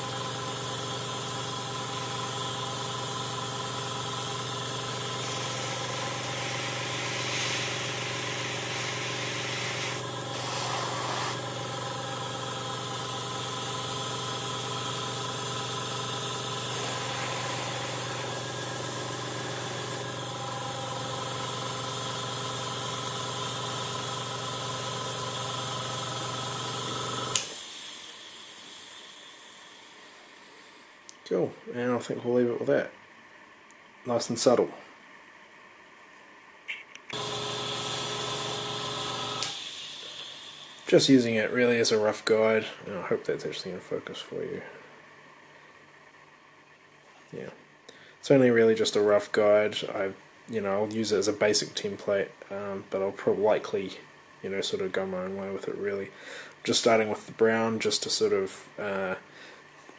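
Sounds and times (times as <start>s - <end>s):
airbrush hissing: 0.0s - 12.6s, 13.8s - 20.0s
compressor humming: 0.0s - 32.9s, 36.7s - 46.4s.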